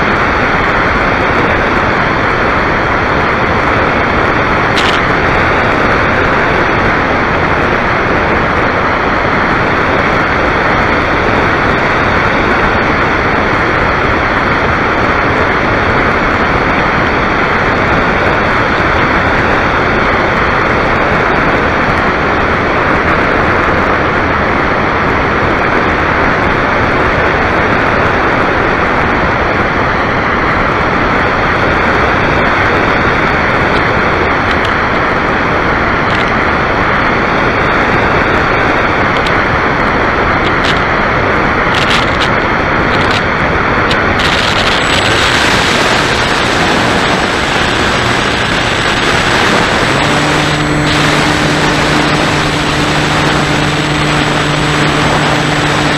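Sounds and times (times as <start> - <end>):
airflow rushing: 0.0 - 24.4, 29.7 - 55.9
motor humming: 3.3 - 7.6, 44.2 - 55.9.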